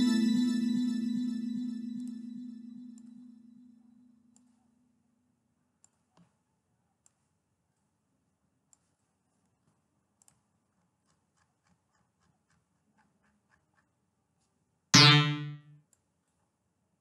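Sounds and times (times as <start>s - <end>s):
synth bass note: 0.0s - 3.6s, 15.0s - 15.6s
faint mouse clicks: 5.8s - 6.4s, 7.0s - 7.4s, 8.7s - 9.1s, 9.7s - 13.9s.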